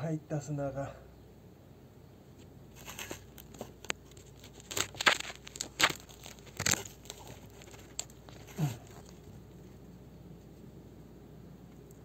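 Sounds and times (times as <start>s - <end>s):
pole scraping gritty boards: 2.7s - 9.3s.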